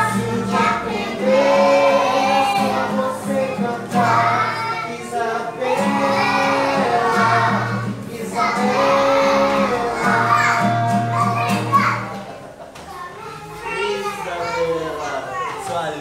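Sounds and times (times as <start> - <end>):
children singing in chorus: 0.0 - 12.1
strummed acoustic guitar: 0.0 - 12.6.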